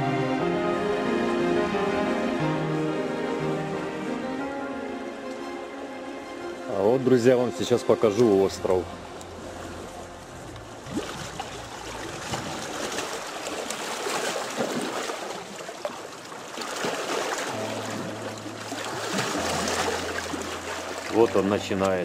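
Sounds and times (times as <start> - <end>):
water lapping against stony shore: 5.3 - 22.0.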